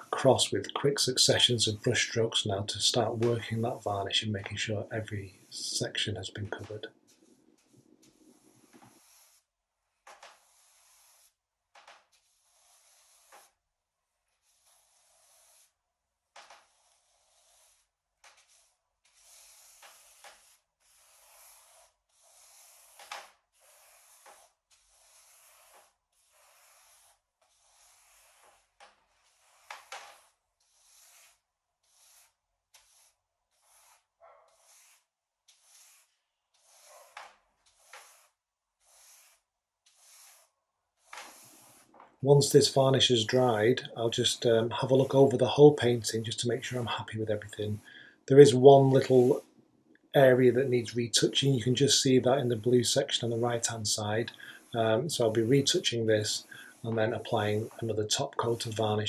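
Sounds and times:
brush swishing across canvas: 6.5s - 11.4s, 12.0s - 15.8s, 16.4s - 43.7s, 53.1s - 59.0s.

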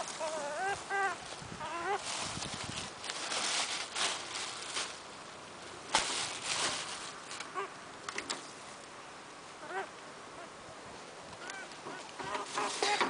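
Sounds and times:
plastic bag rustling: 0.0s - 7.5s.

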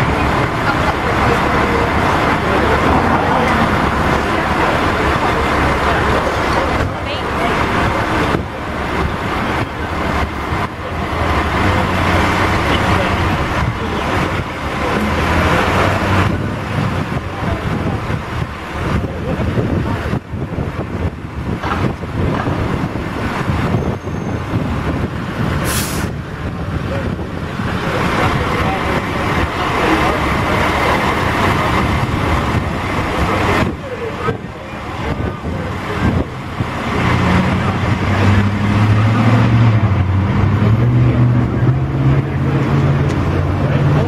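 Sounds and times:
diesel engine running: 0.0s - 44.0s
sharp hiss of air: 25.6s - 26.1s.

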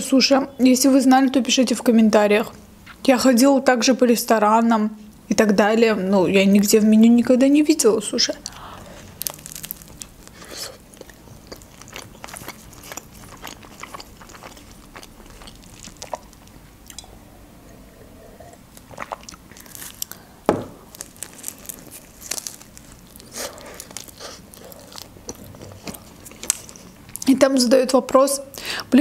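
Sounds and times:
chewing with wet mouth clicks: 9.2s - 17.2s, 18.7s - 20.2s
loud thump: 20.5s - 20.9s.

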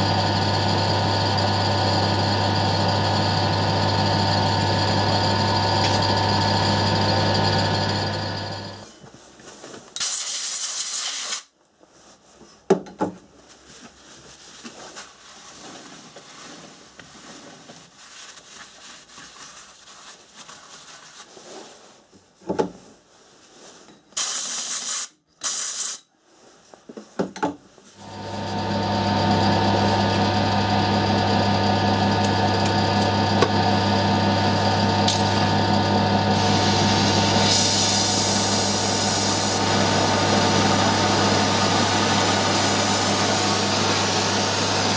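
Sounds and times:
gas torch burning: 4.0s - 8.8s, 28.0s - 44.9s
compressed air blasts: 24.2s - 26.0s.

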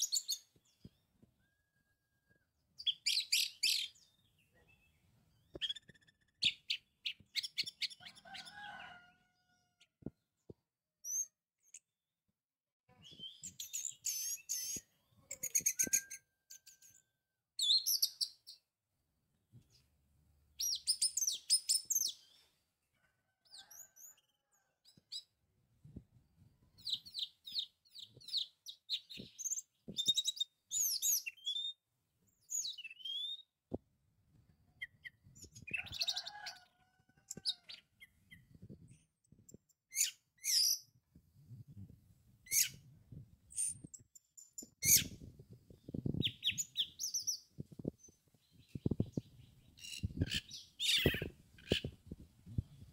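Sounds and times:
bird song whistles and trills: 0.0s - 8.6s, 11.0s - 11.4s, 13.0s - 18.6s, 20.6s - 22.3s, 26.8s - 31.8s, 32.4s - 33.5s, 39.9s - 40.9s, 42.5s - 42.8s, 44.8s - 45.2s, 45.9s - 52.0s.

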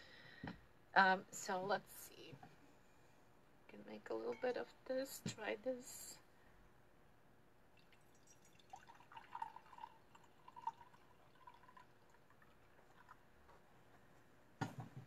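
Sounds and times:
tea pouring into a cup: 7.8s - 13.3s.

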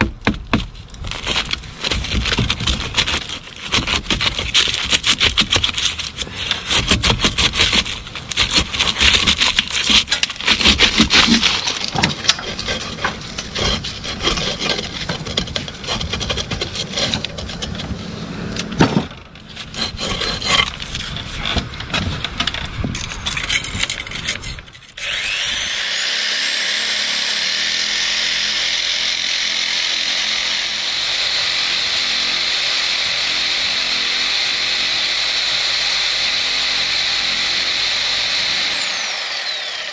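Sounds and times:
hand tools scraping and knocking brick: 0.0s - 25.0s.

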